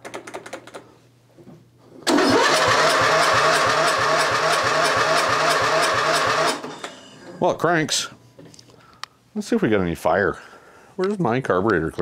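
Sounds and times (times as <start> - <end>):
electric starter cranking engine: 2.0 - 7.1.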